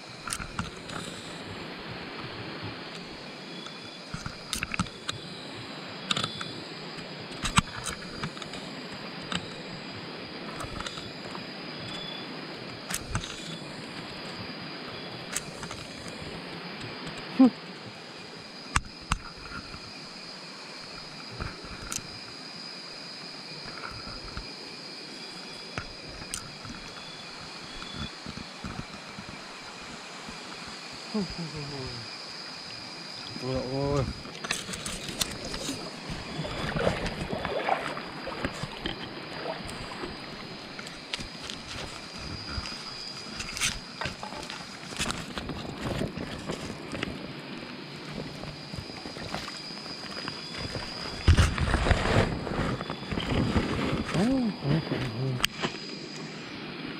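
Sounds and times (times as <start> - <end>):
night insects chirring: 0.0 - 56.9
running stream water: 0.0 - 56.9
splashes in water: 34.3 - 41.4.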